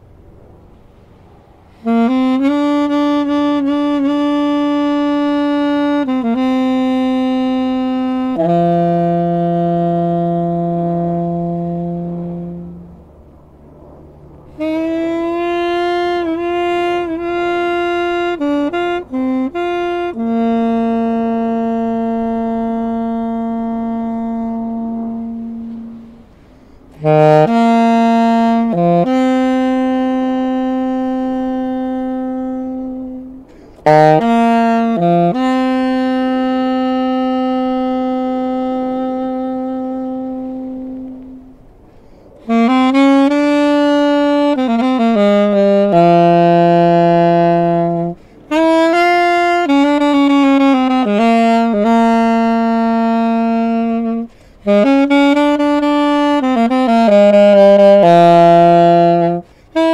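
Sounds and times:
alto saxophone slow melody: 0:00.0 - 0:59.9.

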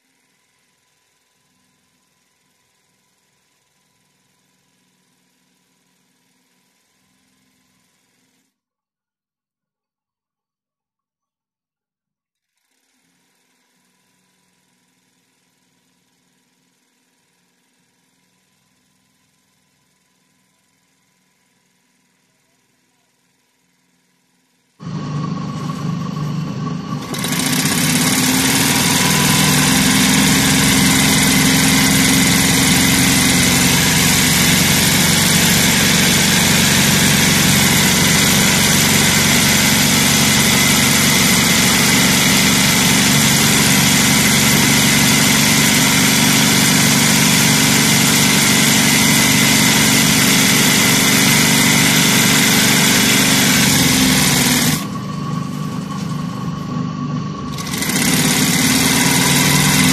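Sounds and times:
electric sewing machine running: 0:12.4 - 0:15.2, 0:23.2 - 0:59.9.

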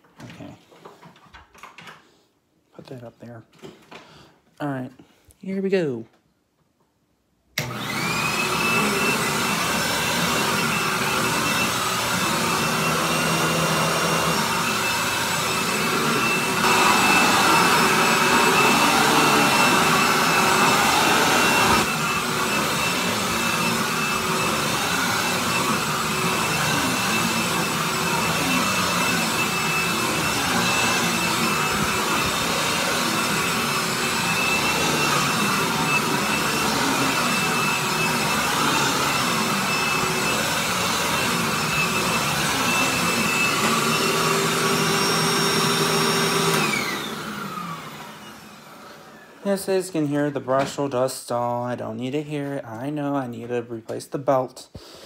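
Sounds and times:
vacuum cleaner motor whining: 0:07.6 - 0:49.6.

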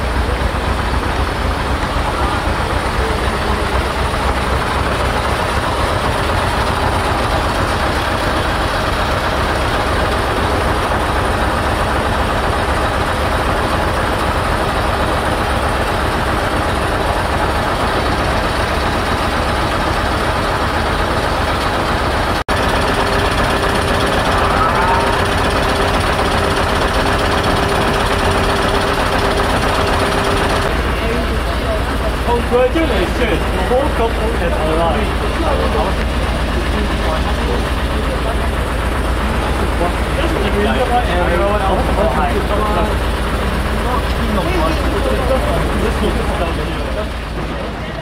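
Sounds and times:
heavy vehicle rumbling: 0:00.0 - 0:48.0
steady hum: 0:00.0 - 0:48.0.

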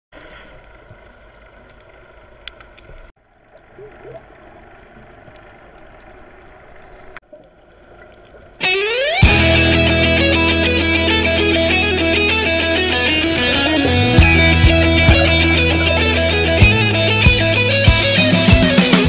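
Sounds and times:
muffled underwater hum: 0:00.2 - 0:08.3
faint clicks: 0:00.2 - 0:08.5
loud guitar music: 0:08.6 - 0:19.0.

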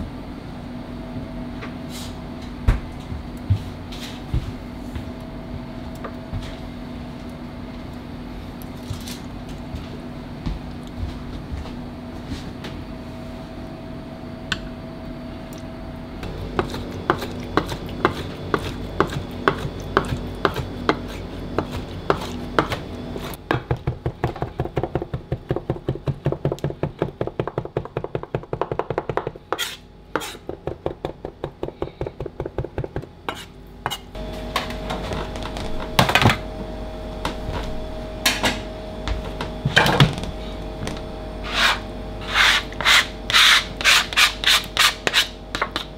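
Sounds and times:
steady hum: 0:00.0 - 0:45.9
knife chopping on cutting board: 0:16.5 - 0:34.0.

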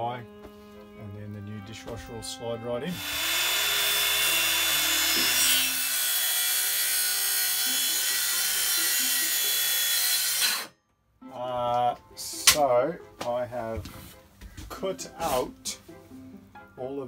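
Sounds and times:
circular saw cutting panel: 0:02.9 - 0:10.7.

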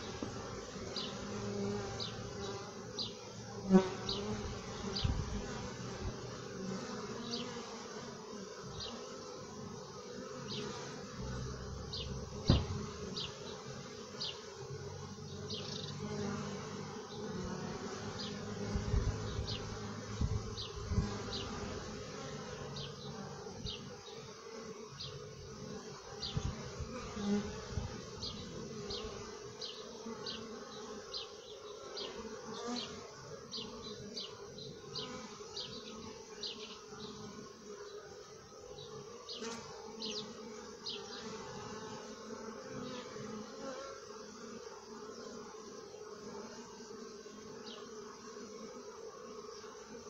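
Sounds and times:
bees buzzing: 0:00.0 - 0:50.0
low thumps: 0:12.4 - 0:13.0.

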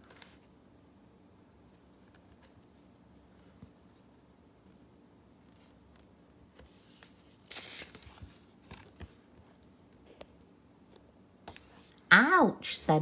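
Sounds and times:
book page turning: 0:00.0 - 0:00.4, 0:01.6 - 0:09.5, 0:11.5 - 0:12.0.

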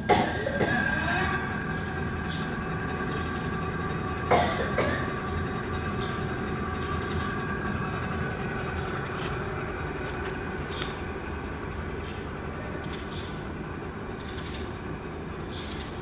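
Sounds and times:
hub motor whining: 0:00.0 - 0:16.0.

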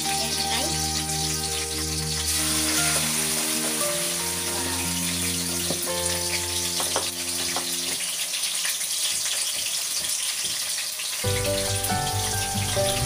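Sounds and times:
background music: 0:00.0 - 0:08.2, 0:11.2 - 0:13.0
livers sizzling in hot oil: 0:00.0 - 0:13.0.

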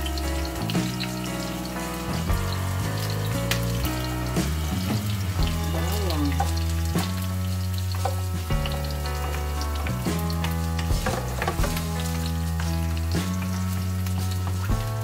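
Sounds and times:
background music with bass line: 0:00.0 - 0:15.0
garlic and onion sizzling in a wok: 0:00.0 - 0:15.0
wooden spatula knocking against pan: 0:10.9 - 0:13.4.

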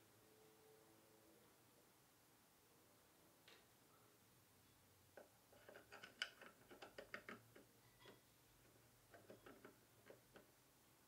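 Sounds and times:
plastic parts clicking and tapping: 0:05.1 - 0:10.6.

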